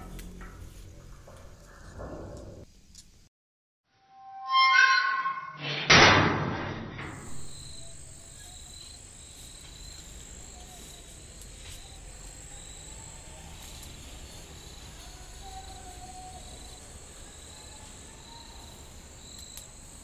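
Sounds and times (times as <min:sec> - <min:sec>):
metal gate creaking: 0:04.1 - 0:08.0
metal gate slamming: 0:04.2 - 0:07.8
crickets chirring: 0:07.1 - 0:20.0.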